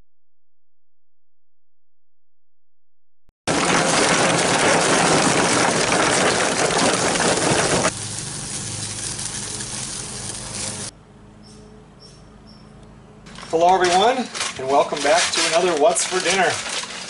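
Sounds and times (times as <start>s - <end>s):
charcoal fire burning: 3.5s - 10.9s, 13.3s - 17.0s
charcoal clattering into grill: 13.3s - 17.0s.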